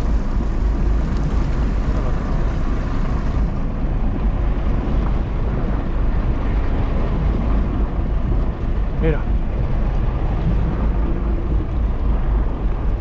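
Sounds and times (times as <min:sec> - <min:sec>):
water washing around hull: 0:00.0 - 0:13.0
wind buffeting microphone: 0:00.0 - 0:13.0.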